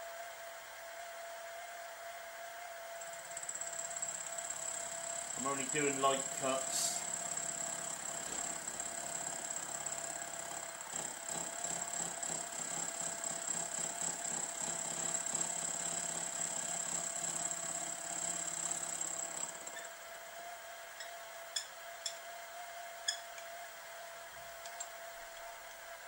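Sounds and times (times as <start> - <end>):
milling machine motor whine: 0.1 - 26.0
end mill cutting chatter: 3.0 - 19.9.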